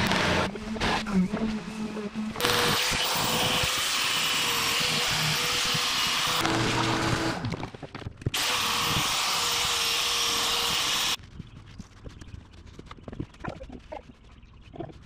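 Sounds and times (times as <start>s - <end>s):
multi-tool cutting fiberglass: 0.0s - 7.6s, 8.4s - 11.2s.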